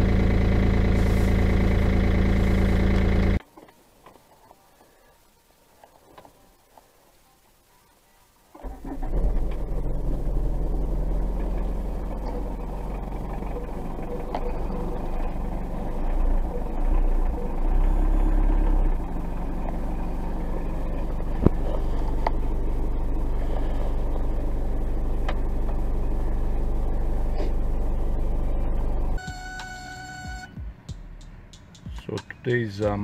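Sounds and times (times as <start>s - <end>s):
diesel engine idling: 0.0s - 3.4s, 8.6s - 30.5s.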